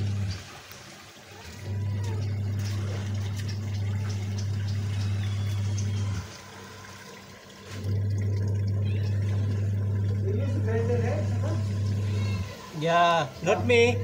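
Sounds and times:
pressure washer motor hum: 0.0s - 14.0s.

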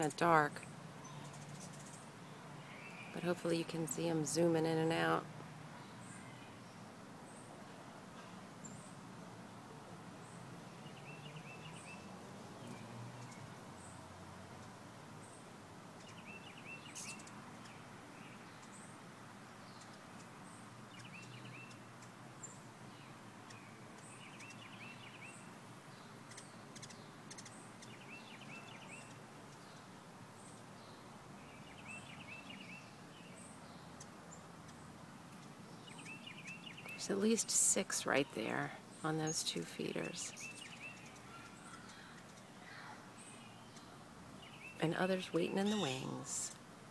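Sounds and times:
faint outdoor hum: 0.0s - 46.9s
hummingbirds chipping: 0.0s - 46.9s
songbird warbling: 35.4s - 46.6s.

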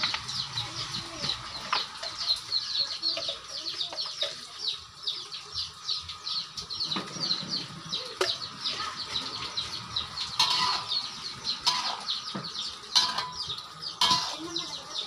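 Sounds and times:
chicks peeping: 0.0s - 15.0s
oil sizzling in a wok: 7.6s - 12.1s, 12.7s - 15.0s.

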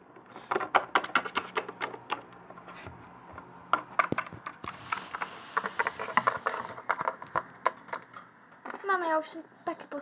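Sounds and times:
toy figures tapping on wooden table: 0.4s - 2.5s, 3.7s - 4.7s, 5.6s - 8.8s.

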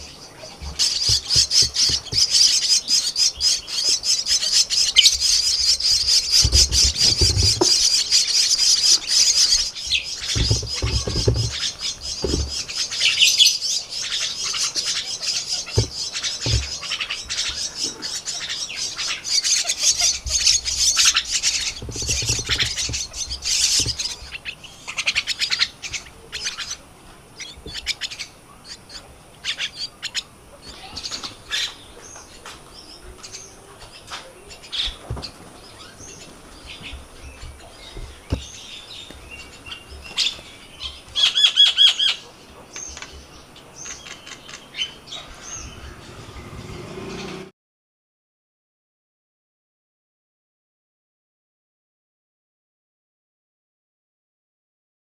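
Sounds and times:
nestlings begging chatter: 0.0s - 47.5s
low bumps: 0.5s - 2.5s, 5.8s - 13.0s, 15.6s - 17.9s, 20.1s - 24.4s, 45.4s - 47.5s.

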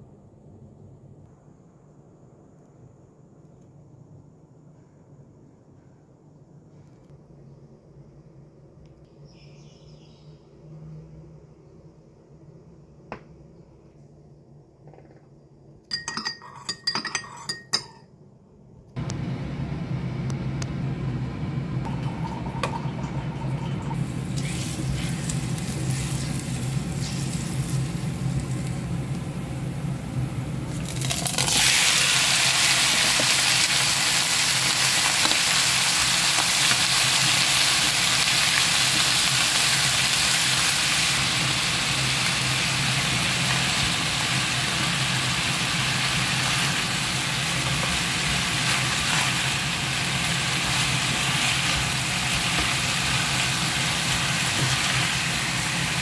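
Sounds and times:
oil frying in a pan: 21.9s - 56.0s
chicken sizzling in oil: 23.9s - 29.7s, 30.7s - 56.0s.

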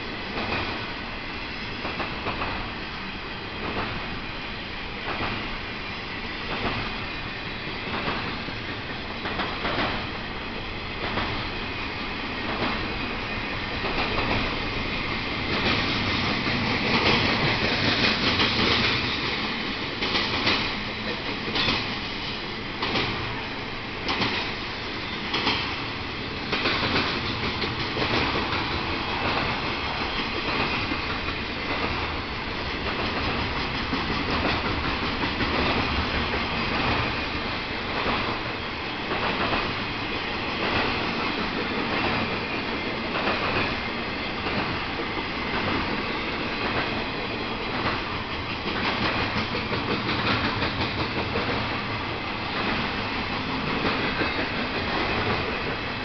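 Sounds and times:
train wheels rumbling on rail: 0.0s - 56.0s
wheels clacking over rail joints: 13.7s - 23.4s, 24.0s - 56.0s.

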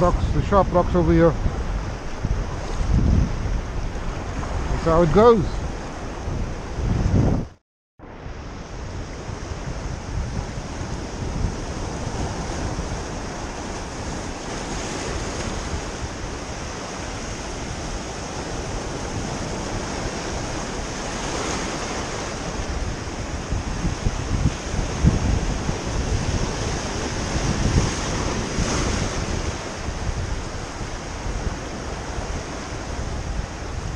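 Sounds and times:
wind rumbling on microphone: 0.0s - 33.9s
surf breaking on rocks: 10.3s - 33.9s.

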